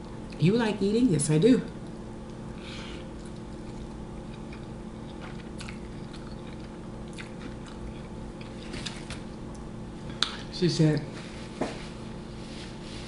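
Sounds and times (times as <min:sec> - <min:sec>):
steady low hum: 0:00.0 - 0:13.0
person chewing food: 0:01.8 - 0:10.5.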